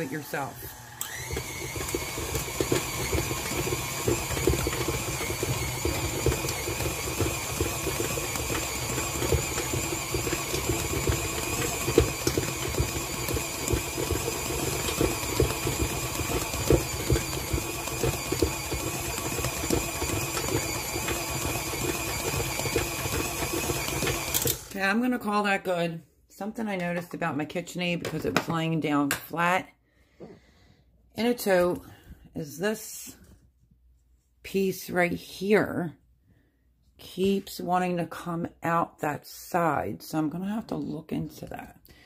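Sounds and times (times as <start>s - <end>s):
stand mixer motor whine: 0.0s - 24.8s
mixer knocking and rattling: 0.0s - 24.9s.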